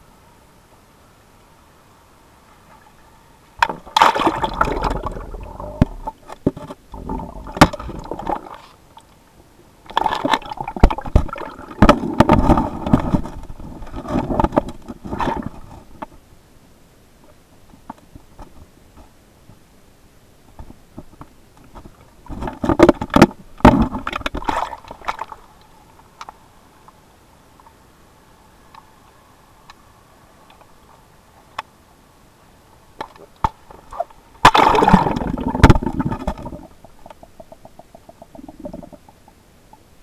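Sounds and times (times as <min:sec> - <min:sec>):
muffled underwater water sloshing: 0:02.4 - 0:09.1, 0:33.0 - 0:40.0
underwater knocks: 0:34.5 - 0:39.4.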